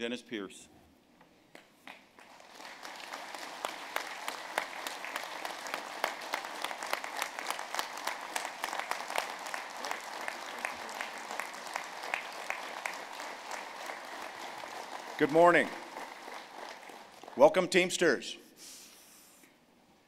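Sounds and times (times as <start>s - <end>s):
large audience applauding: 2.1s - 18.2s.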